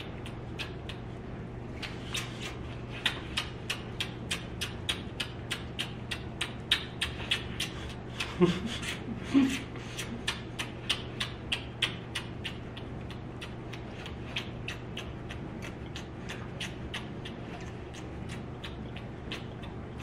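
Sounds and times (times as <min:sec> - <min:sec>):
lip-smacking kisses: 0:00.0 - 0:20.0
steady low hum: 0:00.0 - 0:20.0.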